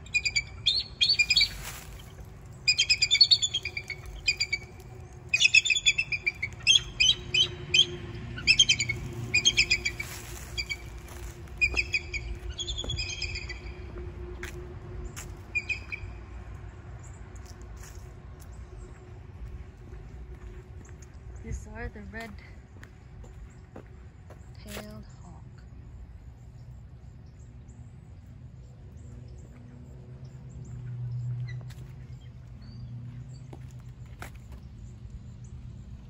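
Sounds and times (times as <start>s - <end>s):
eagle piping chirps: 0.0s - 13.9s, 15.6s - 16.1s.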